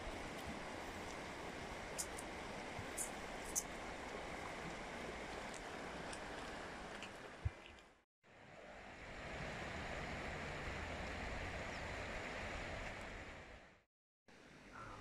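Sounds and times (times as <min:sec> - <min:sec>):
river water rushing: 0:08.8 - 0:13.5.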